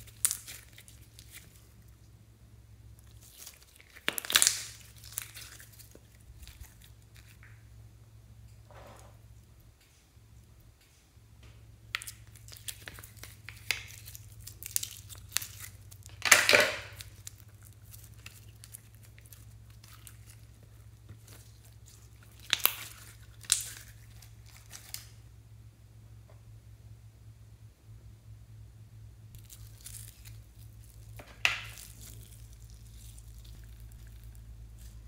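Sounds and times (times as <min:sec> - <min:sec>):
slime tearing crackle: 0:00.0 - 0:01.9, 0:02.9 - 0:07.6, 0:11.9 - 0:25.2, 0:29.3 - 0:35.0
slime sticky clicks and pops: 0:04.0 - 0:05.3.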